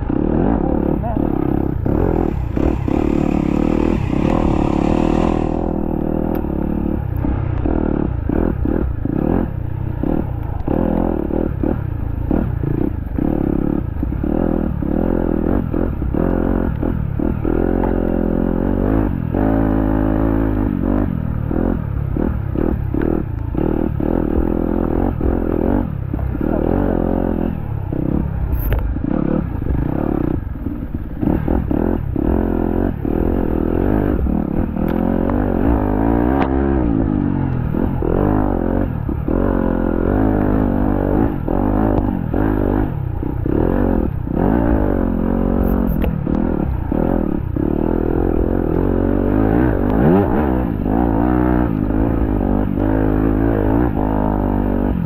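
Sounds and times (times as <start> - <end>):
dirt bike engine revving: 0.0 - 7.0, 31.2 - 54.9.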